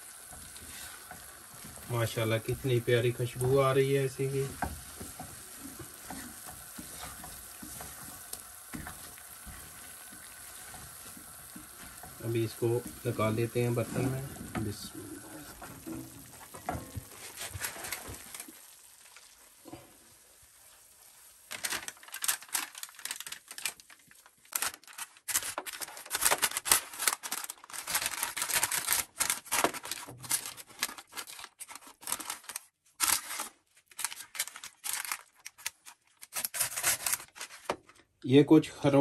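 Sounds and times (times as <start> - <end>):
baking paper crinkling: 0.0 - 19.8, 21.0 - 38.1
spatula scraping: 0.3 - 18.5.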